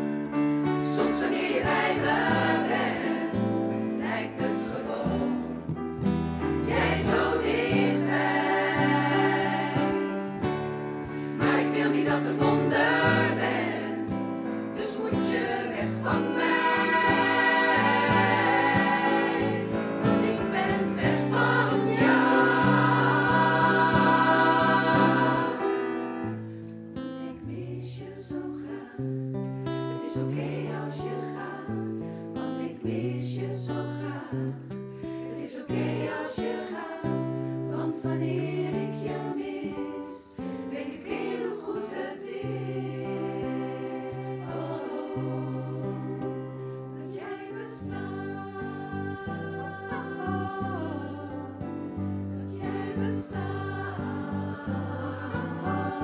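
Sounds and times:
plucked guitar: 0:00.0 - 0:41.6
choir singing: 0:00.7 - 0:56.0.

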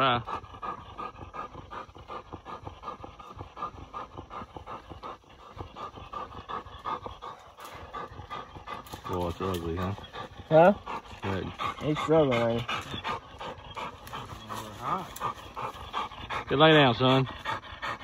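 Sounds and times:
dog panting: 0:00.0 - 0:18.0.

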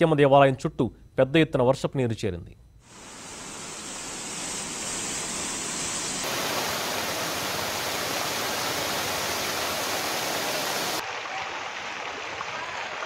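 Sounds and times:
rushing floodwater: 0:06.2 - 0:13.0.

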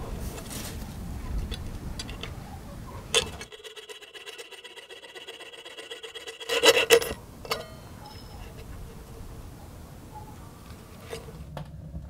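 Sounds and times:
saw cutting sheet metal: 0:03.2 - 0:08.8
sharp metallic clink: 0:05.8 - 0:08.7.

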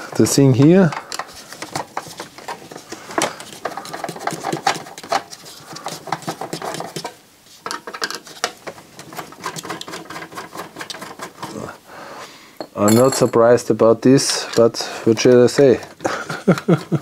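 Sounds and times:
screwdriver clicking and scraping metal: 0:00.1 - 0:11.6.

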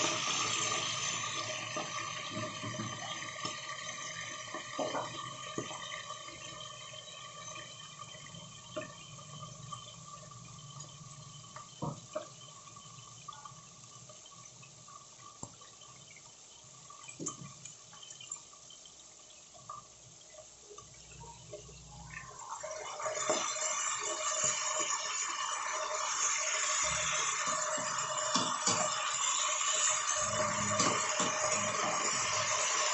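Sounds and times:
meat sizzling in oil: 0:00.0 - 0:08.5, 0:22.2 - 0:32.9.

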